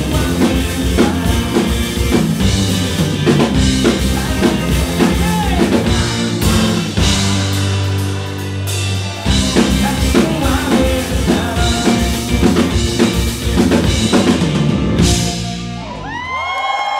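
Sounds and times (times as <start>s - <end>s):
person singing: 0.0s - 6.7s, 9.2s - 13.2s
drum kit: 0.0s - 16.5s
bass guitar: 0.0s - 16.9s
electric guitar: 0.0s - 16.9s.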